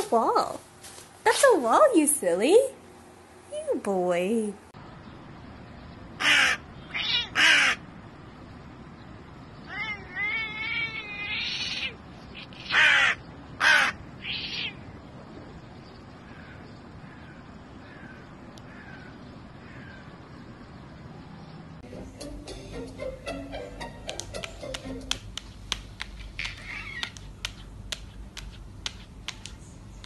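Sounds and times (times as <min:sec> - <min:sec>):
crow cawing: 0:06.2 - 0:07.9, 0:11.4 - 0:14.7, 0:16.2 - 0:20.1
wavering warbling bird calls: 0:09.6 - 0:15.1, 0:26.3 - 0:27.2.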